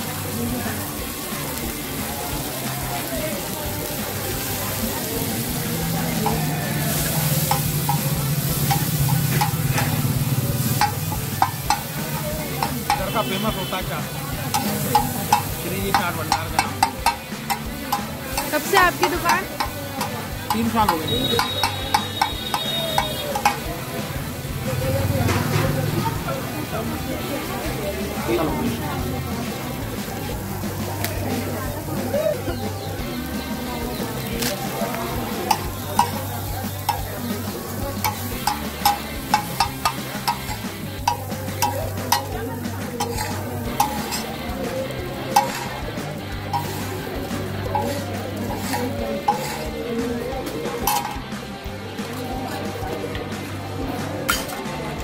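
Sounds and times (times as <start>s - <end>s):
food sizzling in oil: 0.0s - 55.0s
metal spatula scraping a griddle: 5.4s - 13.4s, 14.5s - 23.7s, 34.4s - 50.2s, 50.8s - 51.4s, 54.3s - 54.6s.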